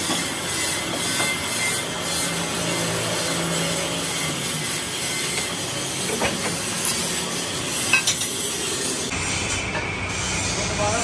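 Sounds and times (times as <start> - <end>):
workshop machinery noise: 0.0 - 11.0.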